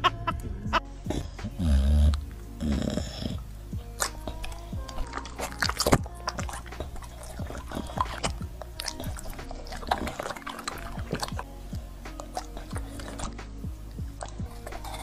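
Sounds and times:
dog chewing and smacking: 0:01.1 - 0:15.0.

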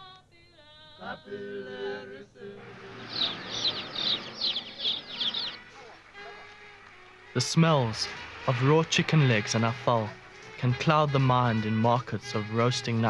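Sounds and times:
person chanting: 0:01.0 - 0:13.0
baby chicks peeping: 0:02.8 - 0:06.6.

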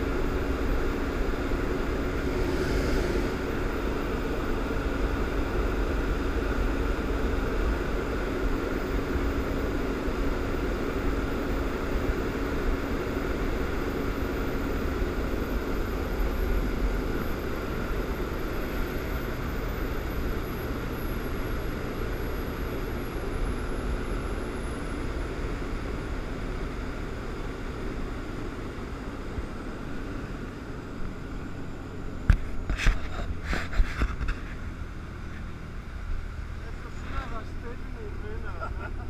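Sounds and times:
hull wash rushing: 0:00.0 - 0:10.2
motorboat engine: 0:00.0 - 0:39.0
wind: 0:00.0 - 0:39.0.

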